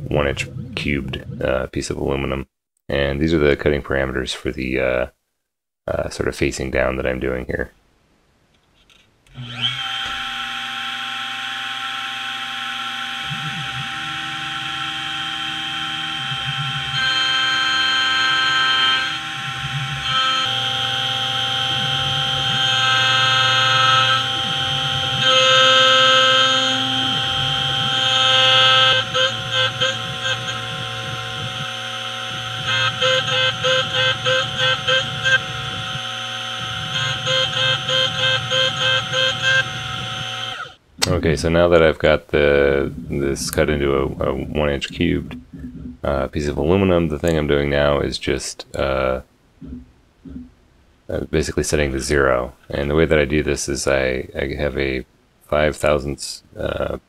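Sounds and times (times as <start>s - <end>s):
mill spindle whine: 9.3s - 40.8s
stepper motors humming: 9.4s - 40.8s, 42.4s - 46.3s, 48.8s - 50.5s
rapid regular pulsing: 12.3s - 46.7s, 48.8s - 50.6s.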